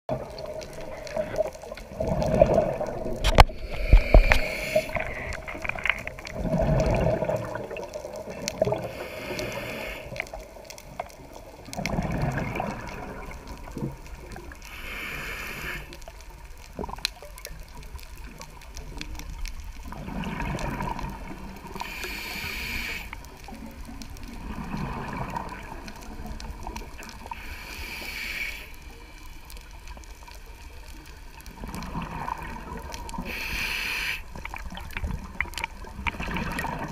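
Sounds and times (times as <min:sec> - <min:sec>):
gurgling exhaled bubbles: 0:00.1 - 0:09.8, 0:10.4 - 0:14.6, 0:19.2 - 0:22.6, 0:23.5 - 0:27.5, 0:31.5 - 0:33.4, 0:34.3 - 0:36.9
hissing regulator inhale: 0:03.3 - 0:05.6, 0:08.8 - 0:10.3, 0:14.7 - 0:16.0, 0:21.8 - 0:23.2, 0:27.3 - 0:29.1, 0:33.2 - 0:34.4.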